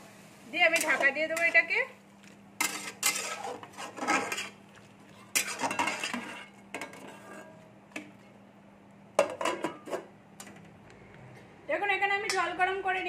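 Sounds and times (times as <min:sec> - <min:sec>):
metal spatula scraping metal pan: 0:00.7 - 0:01.6, 0:02.6 - 0:04.6, 0:05.2 - 0:07.6.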